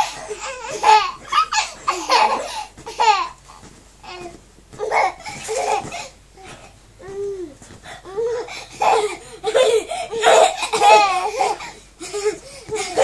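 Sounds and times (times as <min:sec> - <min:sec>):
baby laughing: 0:00.0 - 0:03.4, 0:04.8 - 0:06.1, 0:08.1 - 0:13.0.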